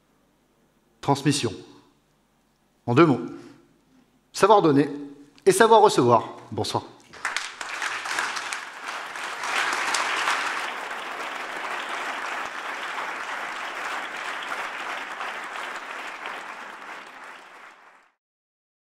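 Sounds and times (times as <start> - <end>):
audience applauding: 7.1 - 18.2.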